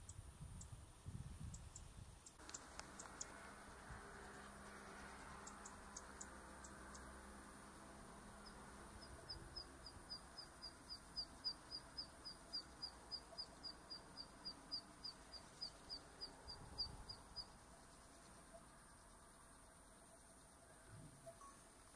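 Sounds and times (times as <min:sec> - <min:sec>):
bird singing short high notes: 0:21.0 - 0:21.7.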